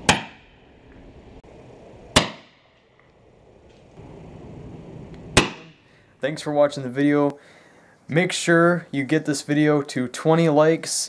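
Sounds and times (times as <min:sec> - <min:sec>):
sharp cracks: 0:00.0 - 0:00.7, 0:02.1 - 0:03.2, 0:05.1 - 0:05.9
low steady hiss: 0:00.0 - 0:11.0.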